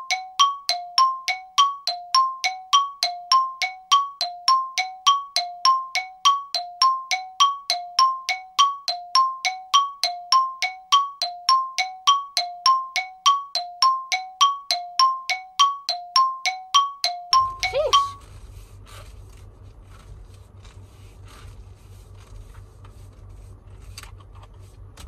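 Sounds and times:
two-tone warning chime dinging: 0.0 - 18.2.

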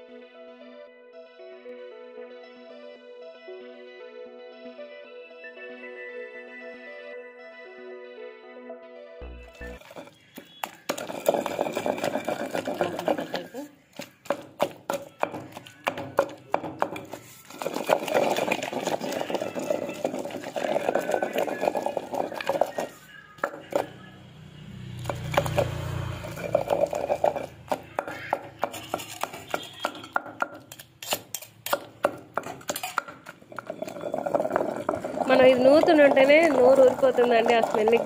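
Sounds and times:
pestle pounding in stone mortar: 9.6 - 23.9, 25.0 - 38.0.

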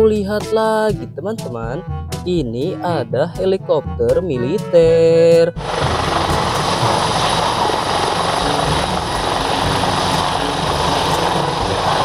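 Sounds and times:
helicopter hovering: 5.6 - 12.0
rotor blades beating: 5.6 - 12.0.

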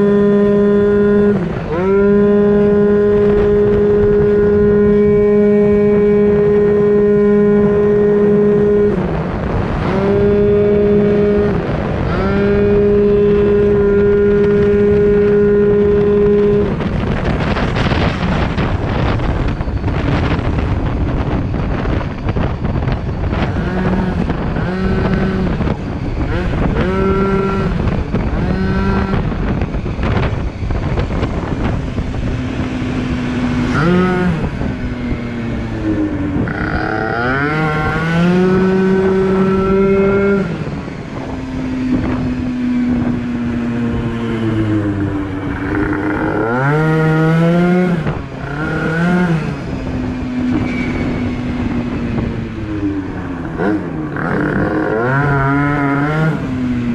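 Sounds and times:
scooter engine revving: 0.0 - 56.9
wind on microphone: 0.0 - 56.9.

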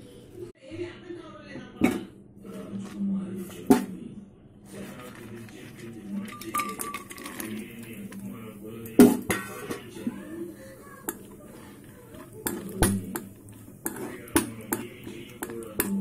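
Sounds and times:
spoon clinking and scraping pan: 4.8 - 16.0.

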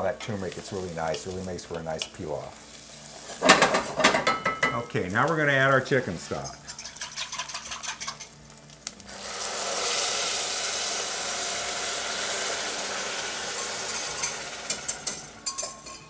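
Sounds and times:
stock hissing in hot pan: 0.0 - 4.0, 7.2 - 15.4.

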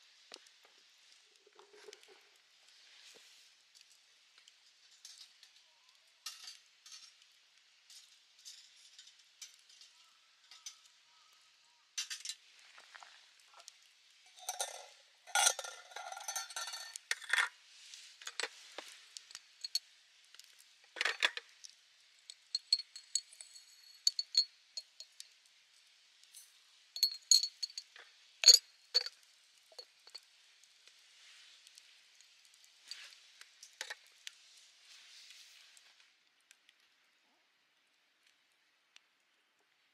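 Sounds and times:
rustling clatter of tableware: 6.3 - 7.2, 14.3 - 17.6, 18.2 - 19.8, 20.9 - 21.5, 22.3 - 24.5, 27.0 - 29.1
high glassy clinks: 14.3 - 17.0, 22.3 - 25.0, 27.0 - 29.1.

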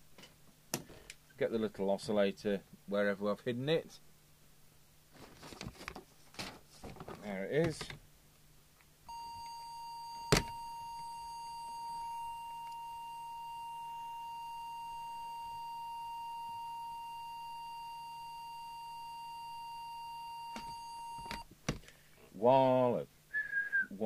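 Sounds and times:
steady test tone: 9.1 - 21.4.

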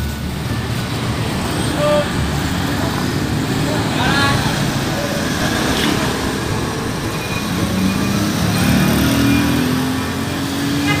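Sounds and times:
street traffic noise: 0.0 - 11.0
car engine pulling away: 2.3 - 10.7.

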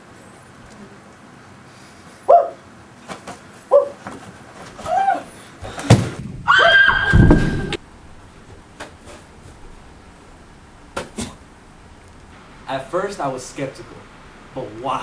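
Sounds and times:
shrill pitched cry: 4.8 - 5.3, 6.5 - 7.8.

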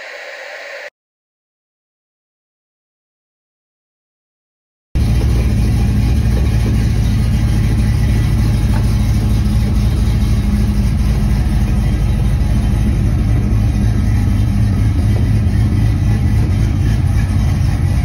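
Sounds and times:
car engine idling loudly: 5.0 - 18.0.

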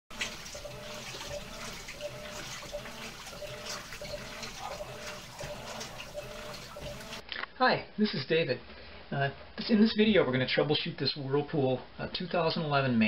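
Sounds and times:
washing machine running: 0.0 - 7.2.

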